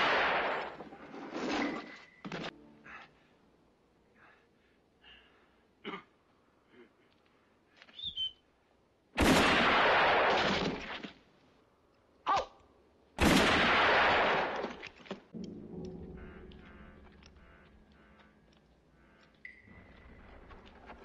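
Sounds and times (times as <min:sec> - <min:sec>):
music: 0:02.5 - 0:03.2, 0:15.4 - 0:20.4.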